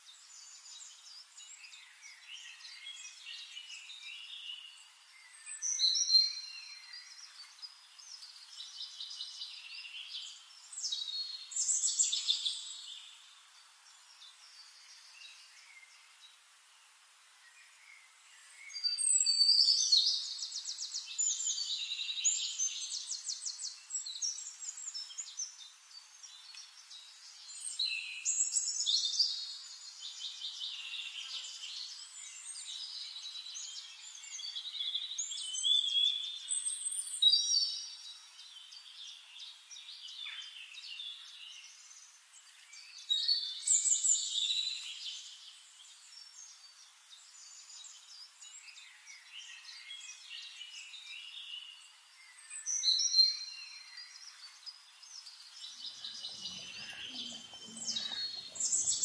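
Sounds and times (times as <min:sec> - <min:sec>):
birds chirping and trilling: 0:17.5 - 0:59.0.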